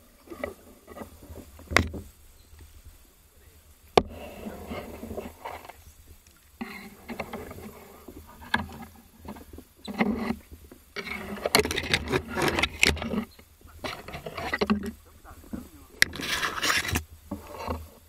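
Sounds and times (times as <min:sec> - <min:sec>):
knocks and scrapes on branches: 0:03.9 - 0:18.0.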